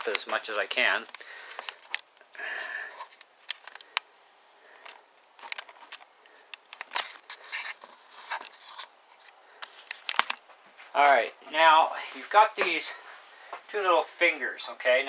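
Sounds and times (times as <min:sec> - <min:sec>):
camera handling rustle: 0:00.0 - 0:02.3, 0:03.0 - 0:04.1, 0:04.8 - 0:10.5
clicks and small knocks: 0:04.8 - 0:10.5.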